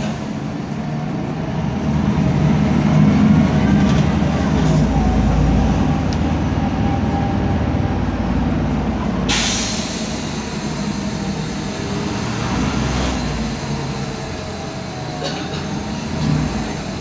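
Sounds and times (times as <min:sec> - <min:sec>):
bus drivetrain drone: 0:00.0 - 0:17.0
hiss: 0:09.3 - 0:12.6.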